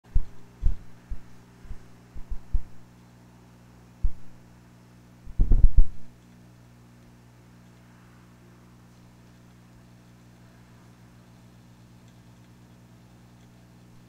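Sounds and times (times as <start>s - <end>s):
steady electrical hum: 0.0s - 14.0s
dull low thumps: 0.1s - 2.8s, 4.0s - 4.4s, 5.3s - 6.1s.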